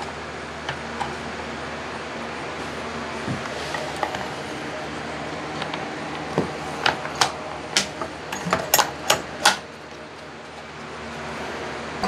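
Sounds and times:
faint steady hum: 0:00.0 - 0:12.0
clicks and knocks of metal tools: 0:06.8 - 0:09.6.

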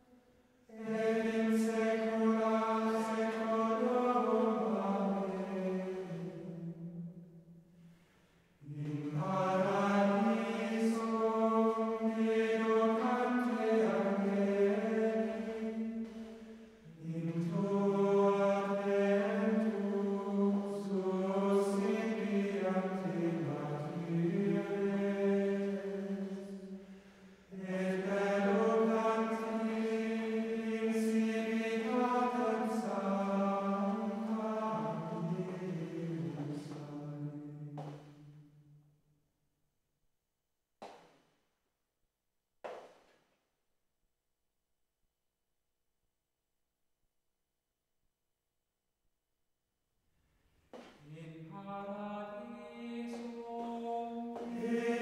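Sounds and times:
slow choral chanting: 0:00.0 - 0:38.6, 0:50.8 - 0:55.0.

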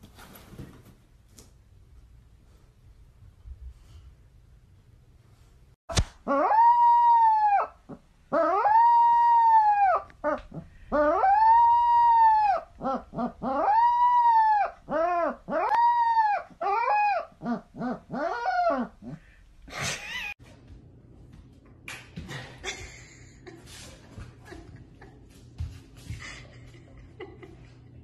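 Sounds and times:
puppy howling: 0:06.3 - 0:19.2
puppy yelping: 0:06.3 - 0:19.2.

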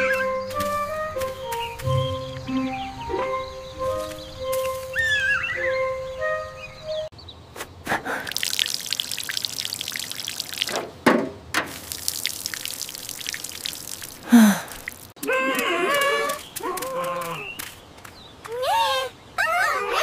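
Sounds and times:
water sprinkling from watering can: 0:08.1 - 0:10.9, 0:11.6 - 0:17.7.

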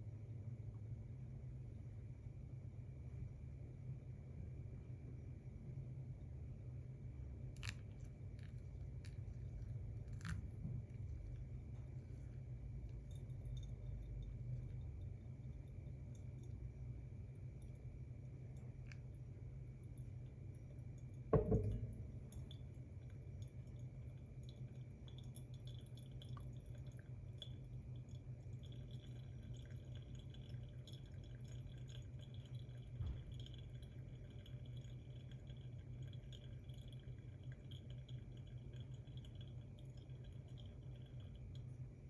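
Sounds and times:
coffee dripping through filter: 0:00.0 - 0:42.0
low steady hum: 0:00.0 - 0:42.0
kettle set down with a knock: 0:21.4 - 0:22.2.

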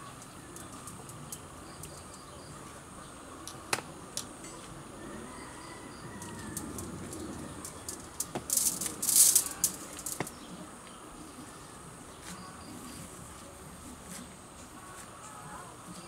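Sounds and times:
branches rustling and clicking: 0:00.0 - 0:02.4, 0:05.6 - 0:11.0.

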